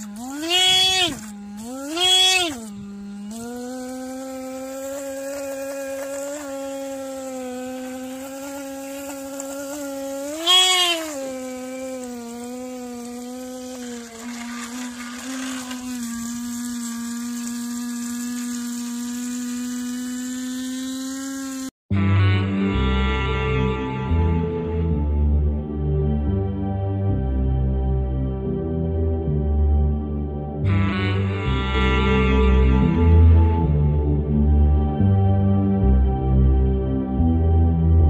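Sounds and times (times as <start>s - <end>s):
electric horn under water: 0.0s - 25.5s, 30.6s - 34.2s.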